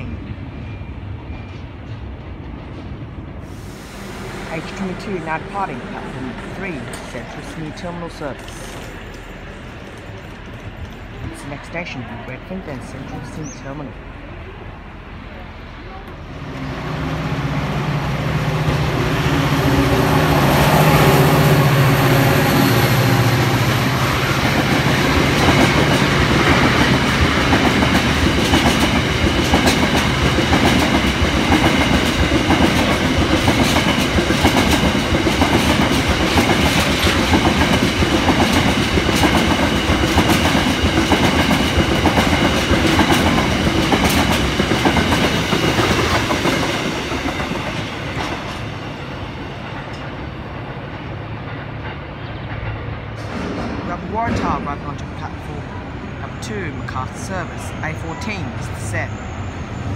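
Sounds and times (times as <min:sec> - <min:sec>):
diesel locomotive engine hum: 0:00.0 - 0:59.9
train wheels clickety-clack: 0:22.9 - 0:48.9, 0:49.5 - 0:55.0.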